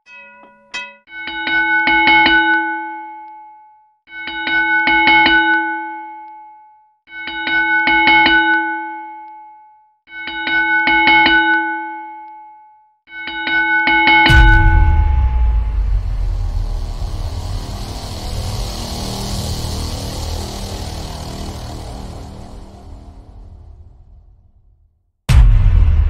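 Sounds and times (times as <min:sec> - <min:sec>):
ringing chime chord: 0:13.2 - 0:24.2.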